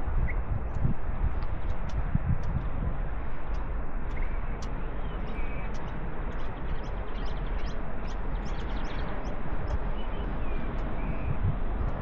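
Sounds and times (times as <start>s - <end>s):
wind on microphone: 0.0s - 12.0s
small birds chirping: 3.5s - 12.0s.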